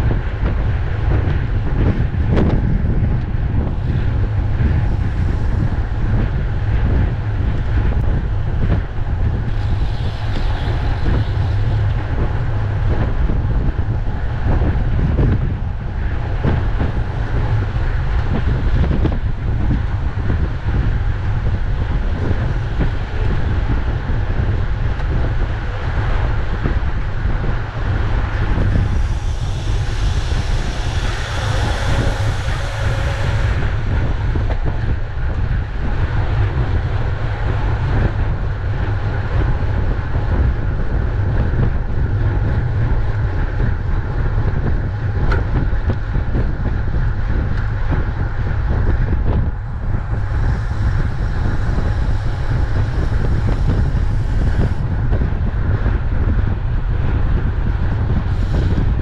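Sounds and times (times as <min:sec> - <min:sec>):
wind buffeting microphone: 0:00.0 - 0:59.0
bright hiss: 0:28.2 - 0:34.9, 0:50.0 - 0:54.8.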